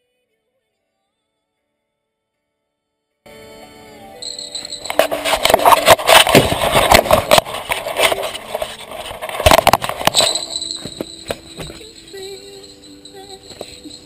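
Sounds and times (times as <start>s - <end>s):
steady high tone: 3.3s - 14.0s
camera handling noise: 4.9s - 11.8s.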